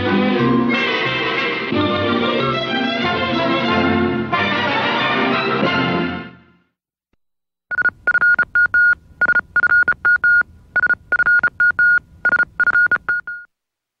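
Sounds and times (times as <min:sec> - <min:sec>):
high electronic beeps: 0:07.7 - 0:13.5.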